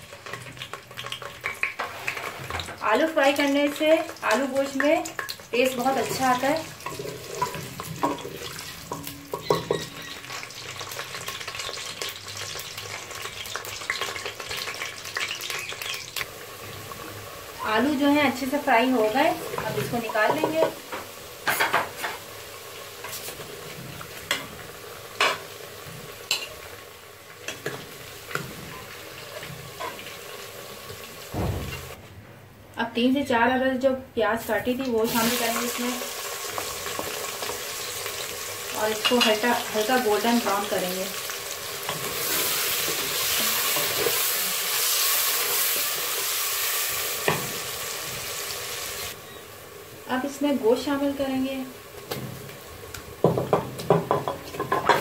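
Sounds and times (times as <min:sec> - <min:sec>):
potatoes sizzling in oil: 0:00.0 - 0:32.0, 0:34.3 - 0:55.0.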